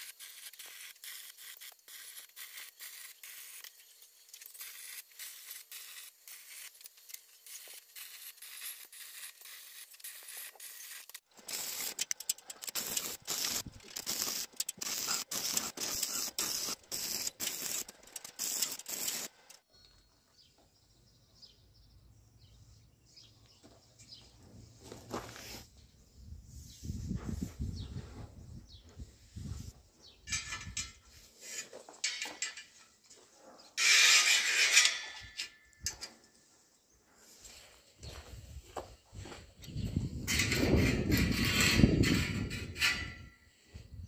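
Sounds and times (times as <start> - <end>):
welding arc crackling: 0.0 - 19.6.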